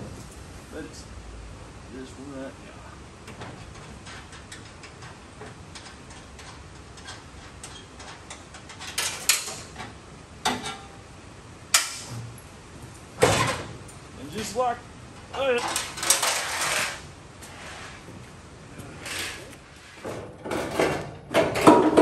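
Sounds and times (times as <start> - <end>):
light metallic ticking and rattling: 3.2 - 10.9.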